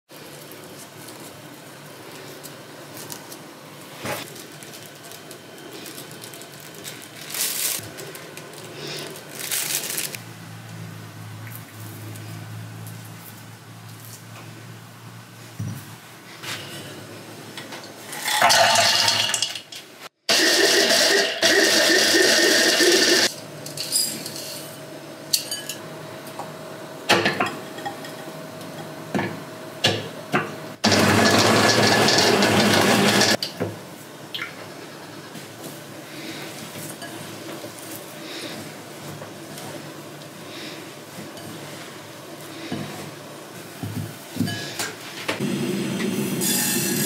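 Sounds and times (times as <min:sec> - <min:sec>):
electric chopper grinding nuts: 0:20.3 - 0:23.3, 0:30.8 - 0:33.4.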